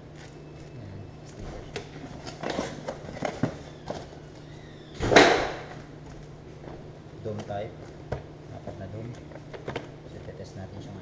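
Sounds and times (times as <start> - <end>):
cardboard packaging handled: 0.0 - 4.5.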